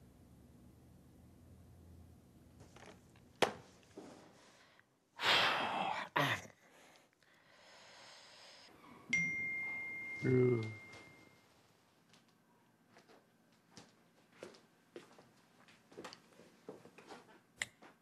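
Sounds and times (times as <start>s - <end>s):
bright ding ringing: 9.1s - 11.4s.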